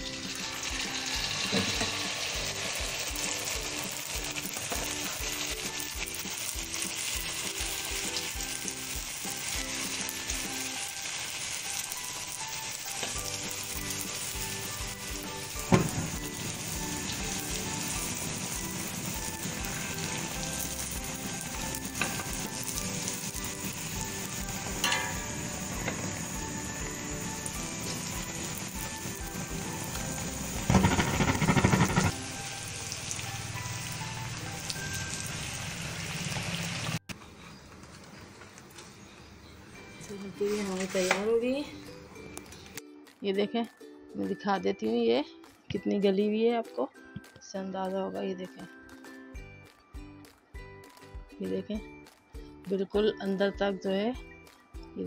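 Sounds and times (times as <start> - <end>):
food deep-frying in hot oil: 0.0 - 41.2
sharp knock: 30.7 - 32.1.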